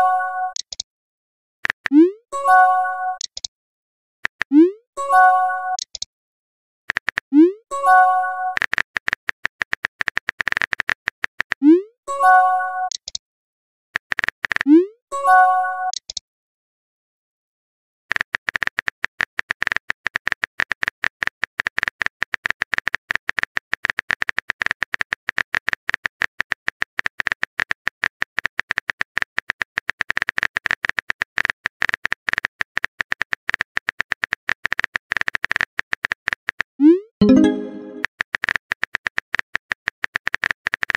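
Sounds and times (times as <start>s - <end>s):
phone keyboard typing clicks: 0.5s - 0.8s, 3.2s - 3.5s, 5.8s - 6.1s, 6.9s - 7.2s.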